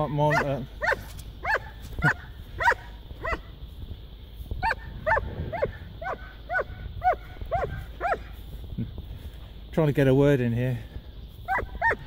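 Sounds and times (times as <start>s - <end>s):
dog barking in high yaps: 0.3s - 3.5s, 4.6s - 8.3s, 11.5s - 12.0s.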